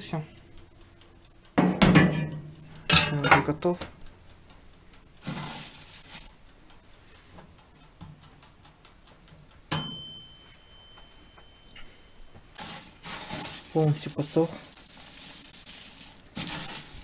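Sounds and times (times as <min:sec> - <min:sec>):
dry tea leaves rustling: 0:05.2 - 0:06.4, 0:12.6 - 0:17.0
faint light ticks: 0:06.3 - 0:09.7
sharp metallic clink: 0:09.7 - 0:12.2.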